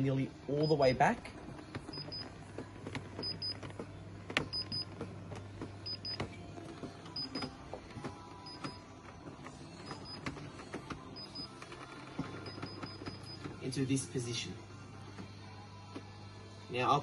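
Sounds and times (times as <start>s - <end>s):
massage mechanism clicks and knocks: 1.5s - 13.6s.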